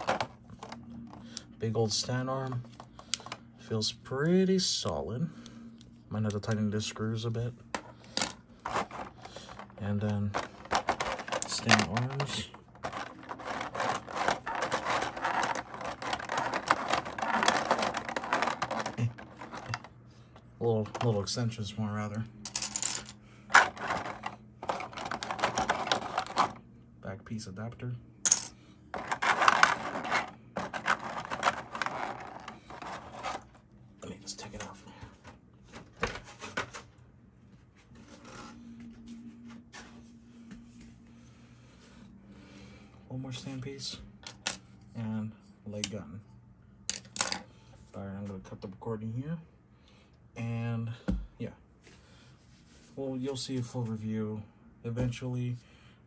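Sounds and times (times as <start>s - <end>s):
plastic packaging rustling: 8.5s - 19.9s, 29.0s - 33.6s
plastic blister tray crinkling: 8.6s - 19.9s, 29.0s - 33.5s.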